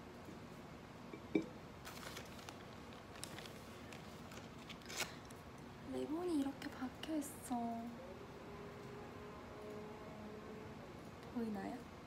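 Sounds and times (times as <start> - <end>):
plastic bag crinkling: 1.8 - 5.4.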